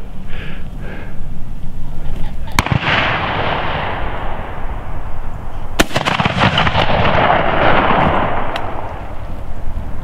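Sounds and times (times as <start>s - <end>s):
shotgun shot: 2.6s - 4.5s, 5.8s - 8.8s.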